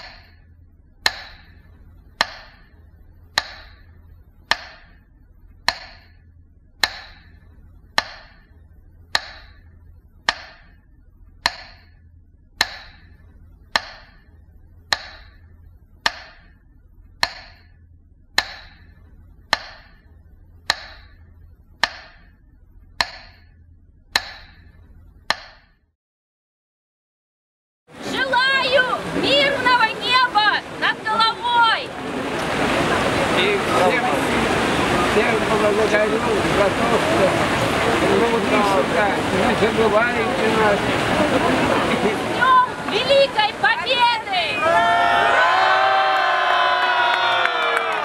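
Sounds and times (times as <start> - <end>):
faint low hum: 0.0 - 25.3
metronome ticking: 0.0 - 25.8.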